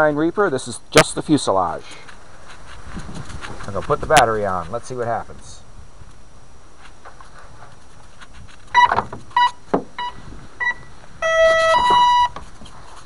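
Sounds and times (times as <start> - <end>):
motor startup beeps: 8.8 - 12.4
rising two-tone beep: 8.8 - 12.4.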